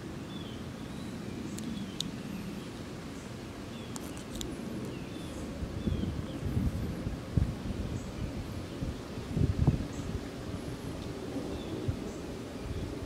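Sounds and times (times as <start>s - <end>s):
wind rumble on microphone: 0.0s - 13.0s
small birds chirping: 0.2s - 7.0s.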